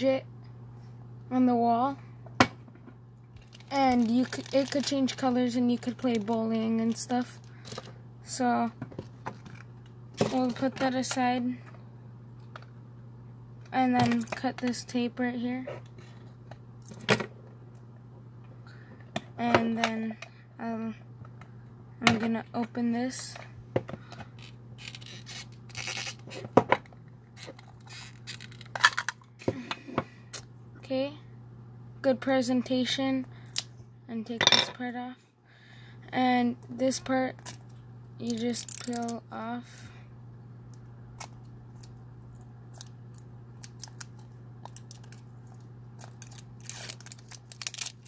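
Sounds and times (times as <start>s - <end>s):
plastic film crackling: 3.4s - 7.0s, 38.3s - 39.2s, 41.8s - 48.0s.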